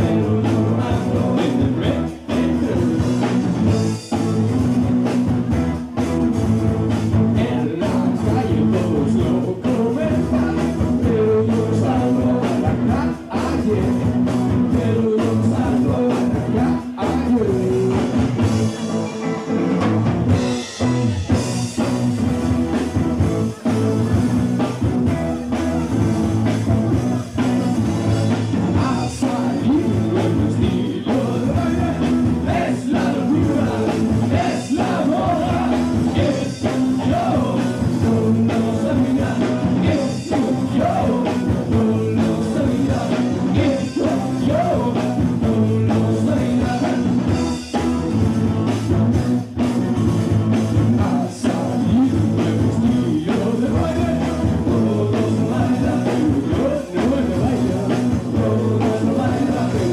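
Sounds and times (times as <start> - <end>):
lead vocals singing: 0.0 - 4.6, 7.1 - 19.3, 26.5 - 47.6, 50.3 - 59.9
live rock band playing: 0.0 - 59.9.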